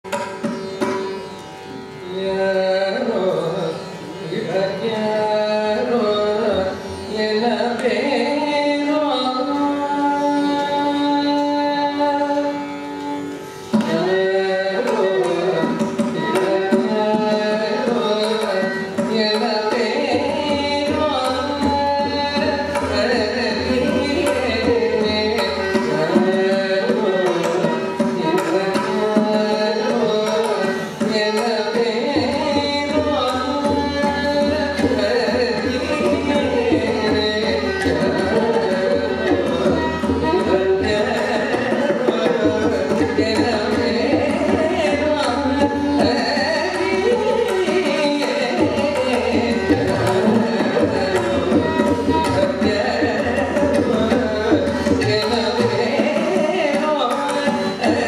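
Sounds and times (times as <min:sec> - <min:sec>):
violin: 0:00.0 - 0:58.0
woman singing: 0:16.2 - 0:58.0.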